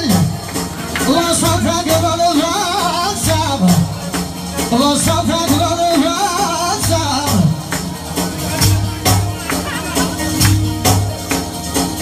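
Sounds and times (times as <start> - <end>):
man singing through microphone: 0.0 - 8.7
amplified backing music: 0.0 - 12.0
steady drum beat: 0.0 - 12.0.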